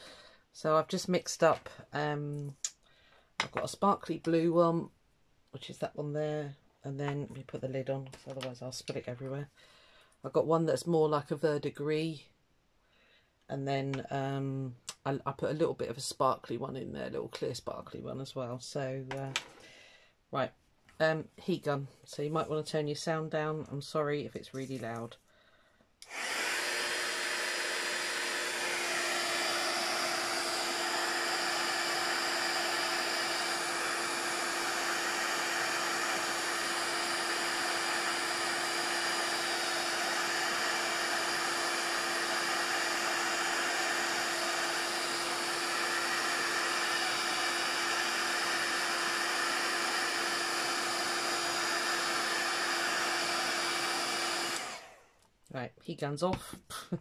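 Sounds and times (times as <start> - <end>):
heat gun blowing air: 26.0 - 55.1.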